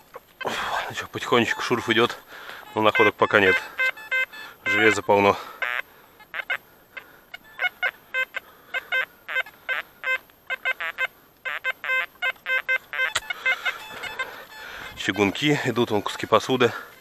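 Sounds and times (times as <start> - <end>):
metal detector beeping: 0.0 - 5.8, 11.7 - 16.6.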